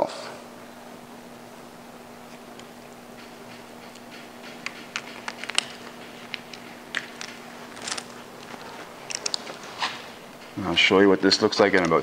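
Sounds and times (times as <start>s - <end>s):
faint steady hum: 0.0s - 12.0s
vinyl film crackling and ticking: 0.7s - 10.4s.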